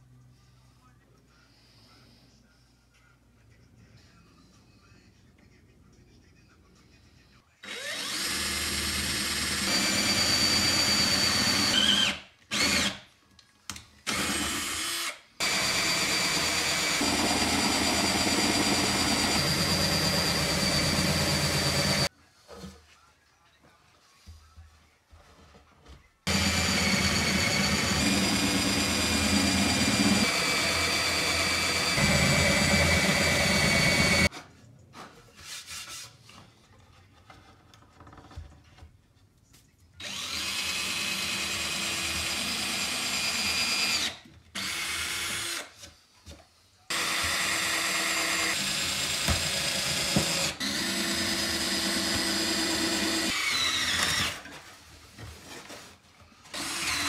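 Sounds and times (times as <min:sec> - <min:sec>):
cordless drill boring into wood: 0:07.6 - 0:13.0, 0:14.1 - 0:22.1, 0:26.3 - 0:34.3, 0:40.0 - 0:45.8, 0:46.9 - 0:54.4, 0:56.5 - 0:57.0.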